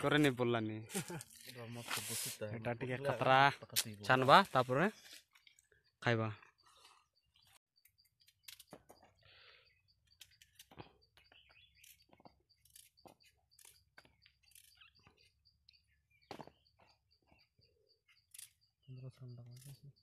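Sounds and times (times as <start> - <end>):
knife clicks and scrapes: 11.8 - 14.9.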